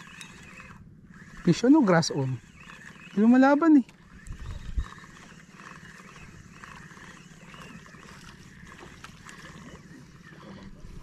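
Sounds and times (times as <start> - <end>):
wind and water hiss: 0.0 - 11.0
wind buffeting microphone: 4.0 - 11.0.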